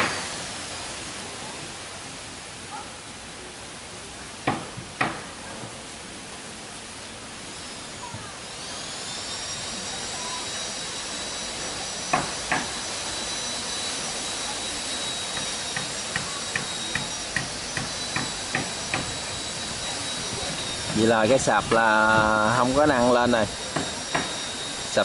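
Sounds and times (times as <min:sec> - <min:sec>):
machine hissing and whining: 0:00.0 - 0:02.6, 0:06.8 - 0:25.0.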